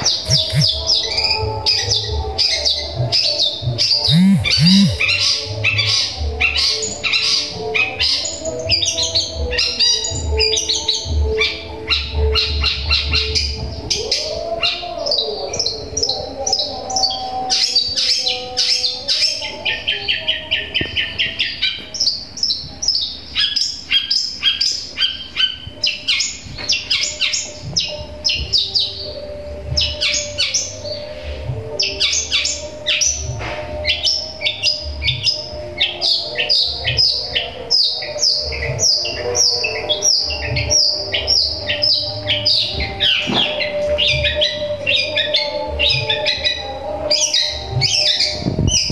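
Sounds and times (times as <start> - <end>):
bird fast trill: 0.0 - 1.2, 3.8 - 5.4
shrike singing rapid high chirps: 0.2 - 1.2, 3.8 - 5.2.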